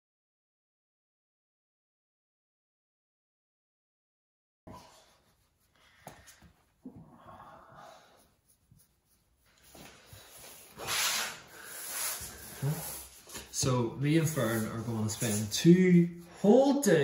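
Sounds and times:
hands rubbing dog fur: 4.8s - 16.9s.

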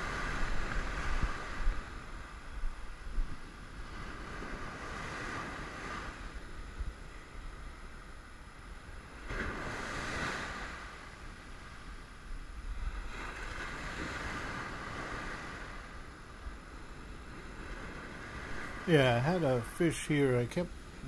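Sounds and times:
ocean surf breaking on beach: 0.0s - 21.0s.

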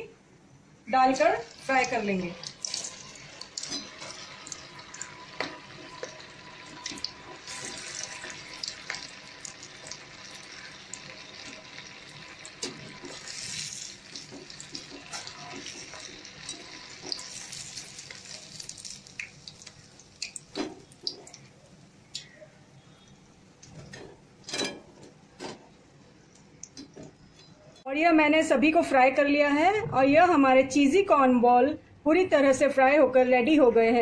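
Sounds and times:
oil sizzling: 1.0s - 22.2s.

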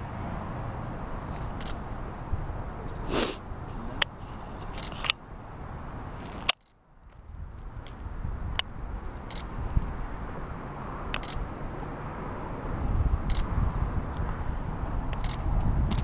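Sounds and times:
outdoor background noise: 0.0s - 16.0s
breathy rush: 2.6s - 4.8s
camera shutter clicks: 9.3s - 9.5s, 11.2s - 11.4s, 13.3s - 13.5s.

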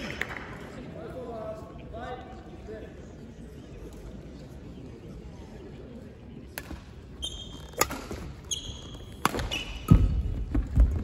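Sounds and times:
sneakers squeaking on floor: 7.1s - 10.8s
racket striking shuttlecock: 7.7s - 8.3s, 9.1s - 10.2s.

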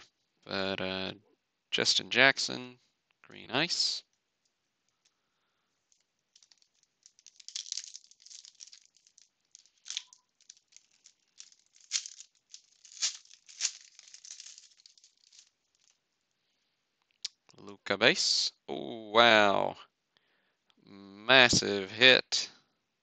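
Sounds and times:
foil wrapper crinkling and tearing: 5.9s - 16.0s.

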